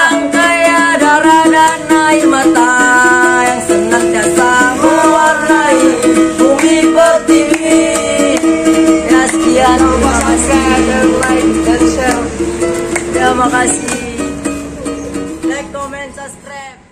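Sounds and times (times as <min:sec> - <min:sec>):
young men singing together: 0:00.0 - 0:14.4
strummed ukulele: 0:00.0 - 0:16.4.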